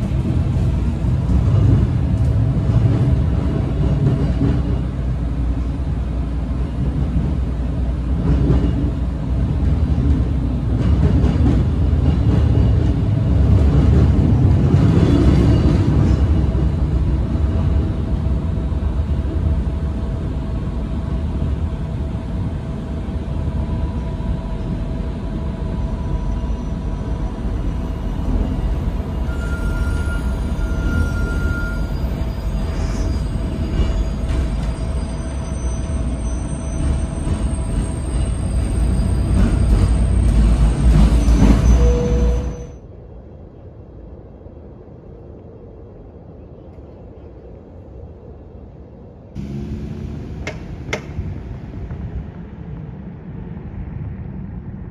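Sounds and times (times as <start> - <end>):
train rumbling on rails: 0.0 - 54.9
constant whine: 15.6 - 54.9.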